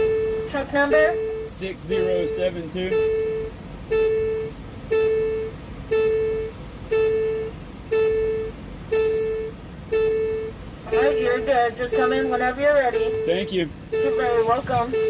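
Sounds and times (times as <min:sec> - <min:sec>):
electronic beeper beeping: 0:00.0 - 0:15.0
short hiss: 0:09.0 - 0:09.4.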